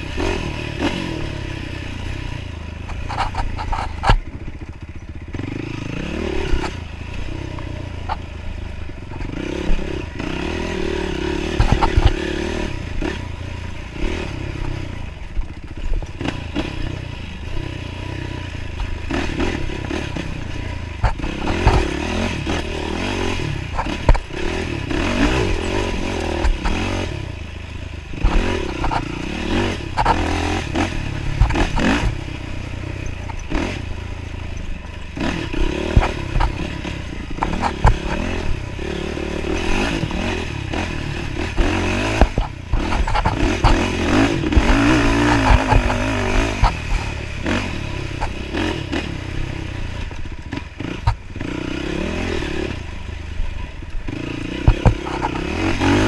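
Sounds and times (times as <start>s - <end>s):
dirt bike engine revving: 0.0s - 56.0s
bike knocking and clattering: 18.8s - 22.7s, 28.1s - 33.7s, 39.6s - 49.1s, 54.5s - 56.0s.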